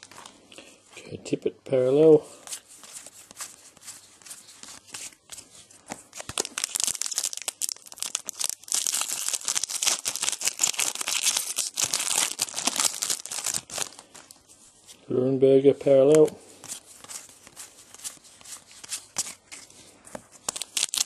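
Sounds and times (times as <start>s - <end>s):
wrapper tearing and crinkling: 6.1s - 14.3s, 20.4s - 21.0s.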